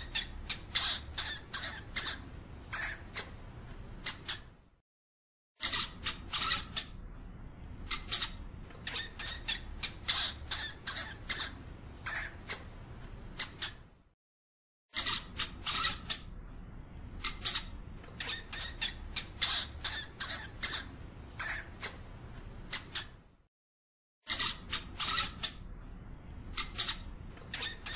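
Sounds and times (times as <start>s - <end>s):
hamster squeaking: 0.0s - 3.4s, 4.0s - 4.6s, 5.6s - 7.0s, 7.9s - 12.8s, 13.4s - 13.9s, 14.9s - 16.3s, 17.2s - 22.1s, 22.7s - 23.2s, 24.3s - 25.7s, 26.5s - 27.9s.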